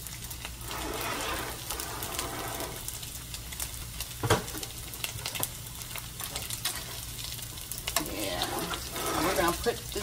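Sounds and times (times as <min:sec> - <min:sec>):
bacon sizzling in a skillet: 0:00.0 - 0:10.0
utensil stirring: 0:00.6 - 0:02.8, 0:08.0 - 0:09.9.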